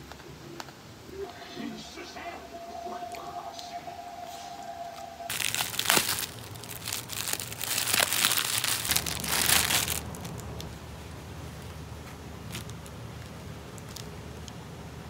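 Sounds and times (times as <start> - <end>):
packaging crinkling: 5.3 - 10.8, 11.4 - 14.6.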